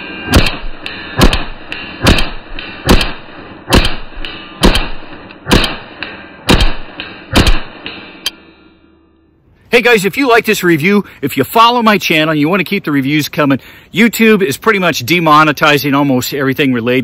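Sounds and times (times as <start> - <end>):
slow-motion pistol shots: 0.0 - 8.3.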